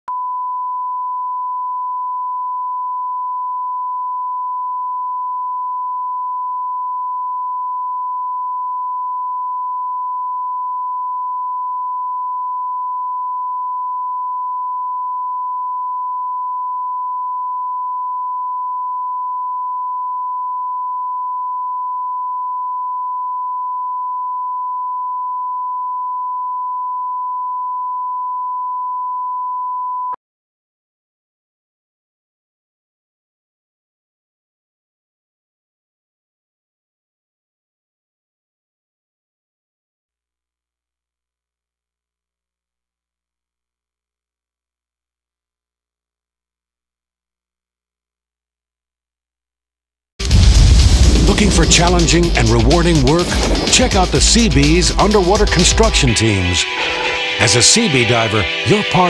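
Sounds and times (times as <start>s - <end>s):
steady sine tone: 0.1s - 30.2s.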